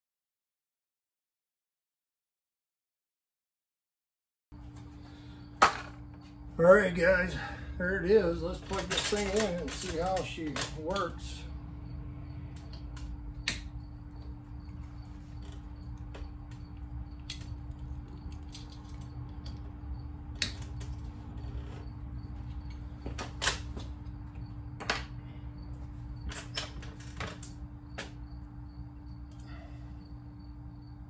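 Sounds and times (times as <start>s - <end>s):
steady low hum: 4.6s - 31.0s
cable connectors clicking and knocking: 8.4s - 11.2s, 17.2s - 21.6s.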